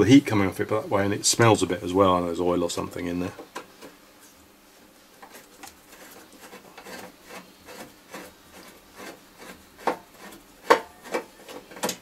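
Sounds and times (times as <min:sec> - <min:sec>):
screwdriver scraping twists: 0:05.2 - 0:12.0.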